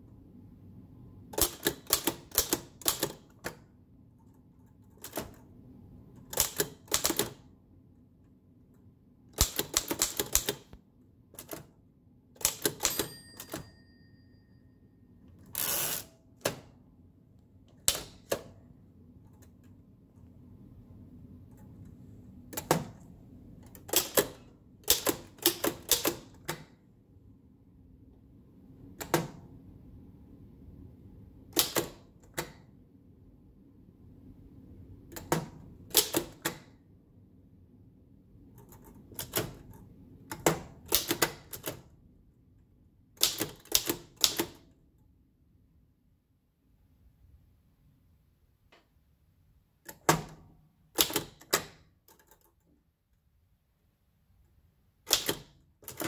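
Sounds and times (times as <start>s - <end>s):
typewriter carriage return: 1.3s - 3.6s, 4.8s - 5.5s, 6.2s - 7.5s, 9.4s - 11.7s, 12.4s - 13.8s, 15.4s - 16.7s, 17.8s - 18.6s, 23.6s - 26.8s, 31.6s - 32.7s, 35.1s - 36.7s, 38.6s - 41.9s, 43.2s - 44.7s, 49.9s - 52.6s, 55.0s - 56.0s
typewriter keystrokes: 1.3s - 3.6s, 4.8s - 5.5s, 6.2s - 7.5s, 9.4s - 11.7s, 12.4s - 13.7s, 17.8s - 18.6s, 23.6s - 26.8s, 29.0s - 29.4s, 31.5s - 32.7s, 35.1s - 36.8s, 38.6s - 41.9s, 43.2s - 44.7s, 49.9s - 52.6s, 55.0s - 56.0s
typewriter margin bell: 12.4s - 15.0s.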